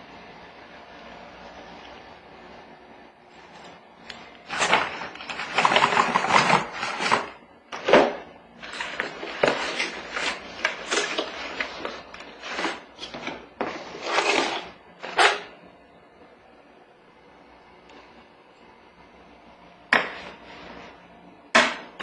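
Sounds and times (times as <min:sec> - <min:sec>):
cardboard scraping and rustling: 0:04.4 - 0:15.5.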